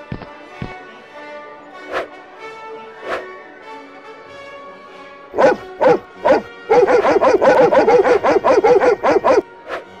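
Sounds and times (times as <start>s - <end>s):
cartoon dog barking: 5.4s - 9.4s.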